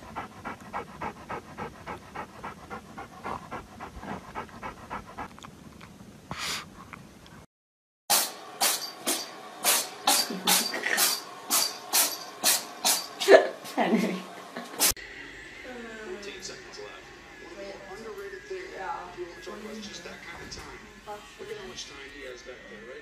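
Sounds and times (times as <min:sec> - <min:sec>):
small dog panting: 0:00.0 - 0:05.5.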